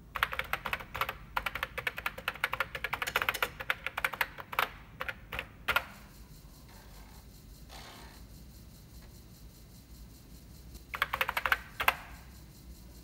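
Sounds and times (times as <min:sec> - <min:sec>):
keyboard typing clicks: 0:00.1 - 0:06.1, 0:10.9 - 0:12.2.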